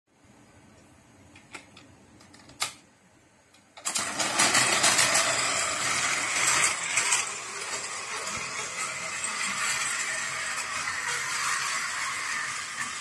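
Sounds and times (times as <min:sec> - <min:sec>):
toy train whirring and rattling: 0:03.8 - 0:13.0.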